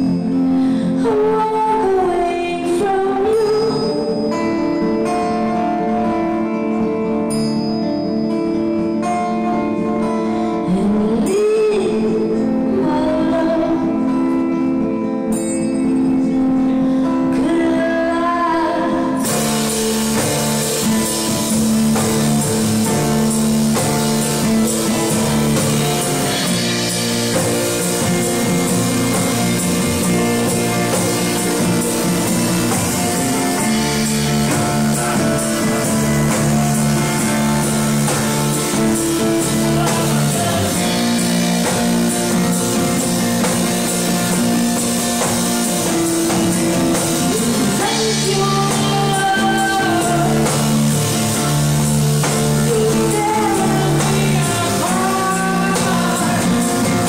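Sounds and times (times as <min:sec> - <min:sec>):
acoustic guitar: 0:00.0 - 0:57.0
woman singing into microphone: 0:00.1 - 0:05.3, 0:10.4 - 0:14.7, 0:16.5 - 0:19.4, 0:38.7 - 0:41.6, 0:46.9 - 0:51.5, 0:52.4 - 0:57.0
plucked double bass: 0:19.2 - 0:57.0.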